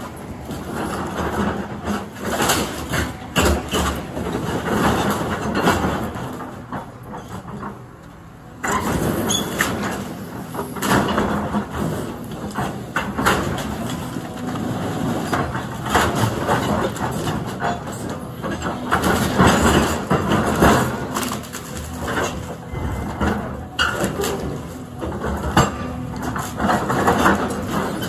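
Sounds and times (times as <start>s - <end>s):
excavator engine under load: 0.0s - 28.0s
debris cracking and crashing: 10.8s - 28.0s.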